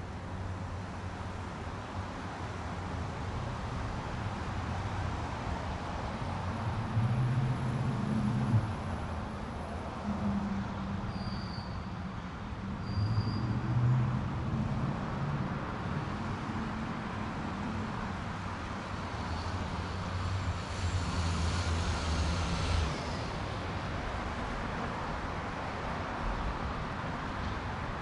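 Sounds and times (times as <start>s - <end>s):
road traffic: 0.0s - 28.0s
vehicle engine low hum: 4.8s - 11.0s.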